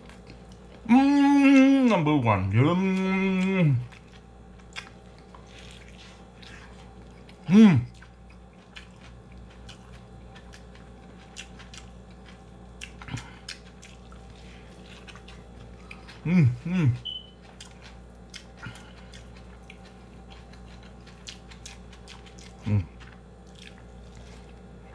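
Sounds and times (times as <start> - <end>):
person chewing food: 0.0 - 24.9
person humming briefly: 2.7 - 3.9, 7.4 - 7.9, 16.2 - 17.1, 22.6 - 23.0
food squishing: 2.9 - 24.9.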